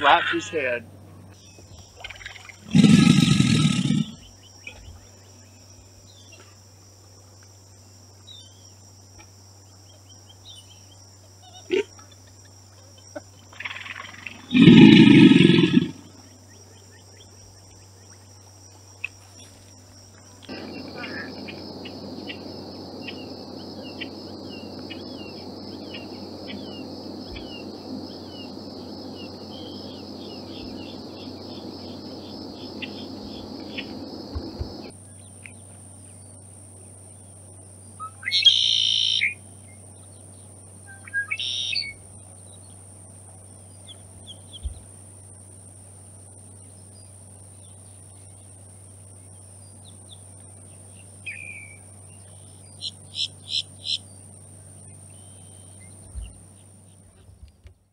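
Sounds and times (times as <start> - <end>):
steady background hum: 0.0 - 57.9
blackbird singing: 38.0 - 39.4, 40.1 - 42.0, 51.2 - 54.2.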